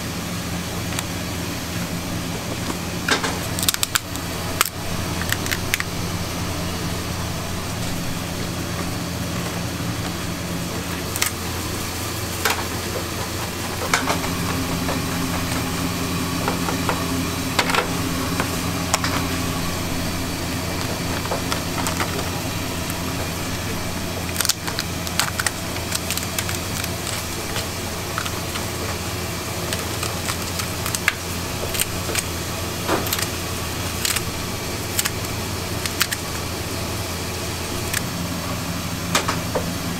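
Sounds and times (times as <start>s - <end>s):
low machine hum: 0.0s - 39.9s
scissors cutting crab shell: 3.5s - 5.9s, 11.1s - 11.4s, 24.1s - 29.0s, 29.6s - 36.4s.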